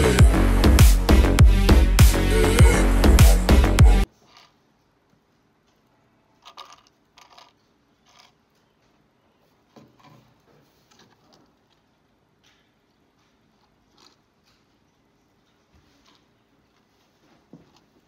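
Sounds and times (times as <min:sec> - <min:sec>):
plastic cup handling clicks and rustles: 0:04.1 - 0:05.8, 0:06.4 - 0:08.8.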